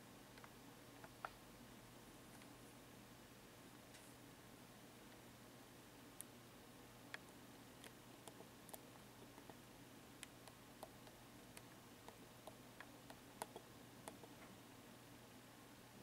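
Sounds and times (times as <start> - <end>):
faint irregular small clicks: 0.3 - 1.4, 2.3 - 2.6, 6.2 - 6.4, 7.1 - 9.6, 10.2 - 14.6.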